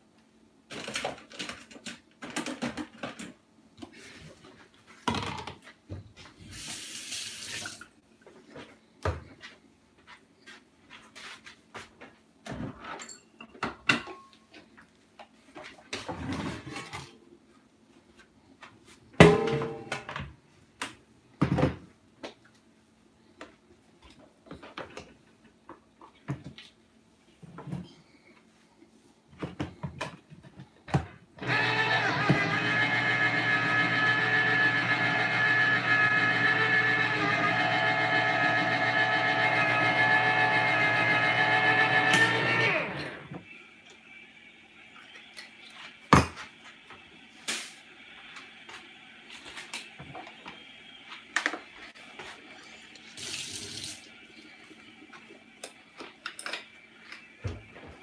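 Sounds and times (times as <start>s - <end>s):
cookware and utensils clattering: 12.7s - 14.4s.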